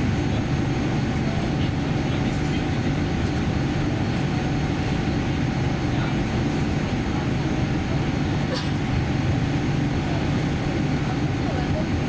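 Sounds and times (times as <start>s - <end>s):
airliner cabin rumble: 0.0s - 12.0s.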